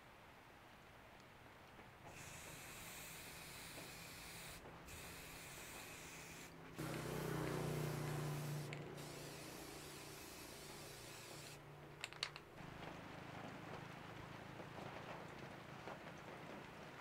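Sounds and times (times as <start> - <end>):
aerosol spray can hissing: 2.1 - 12.5.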